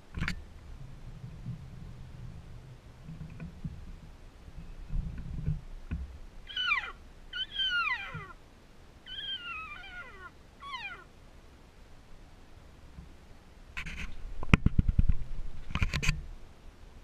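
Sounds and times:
elk calls: 6.5 - 8.4, 9.1 - 11.1.

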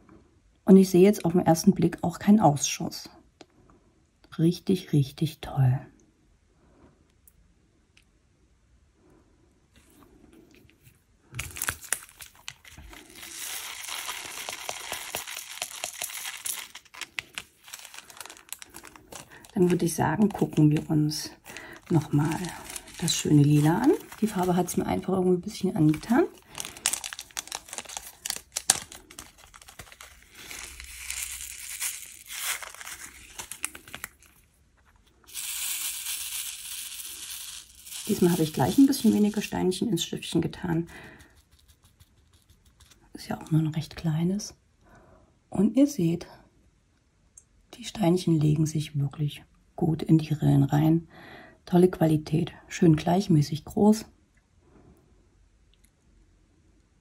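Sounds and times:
plastic bag crinkling: 11.3 - 43.1
plastic beads rattling on a tray: 11.4 - 34.4, 35.2 - 39.8.

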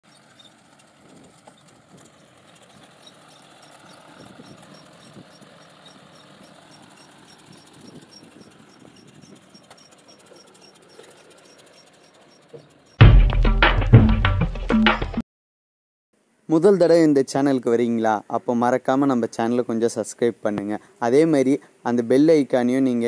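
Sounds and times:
tractor and baler clattering: 0.0 - 13.0
high ticking: 2.5 - 15.2.

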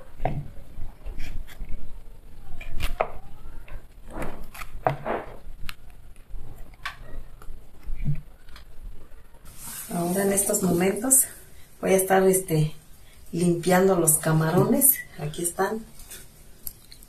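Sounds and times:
knife scraping cactus: 4.1 - 5.4.

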